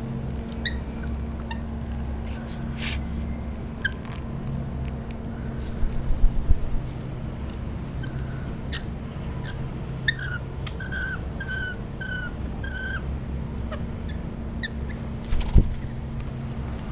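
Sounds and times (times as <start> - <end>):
lorikeet calls: 8.0 - 13.1.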